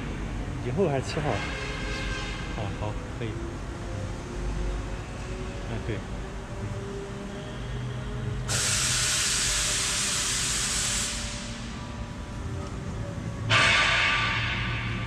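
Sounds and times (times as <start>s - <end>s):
loud hissing bursts: 8.5s - 11.9s.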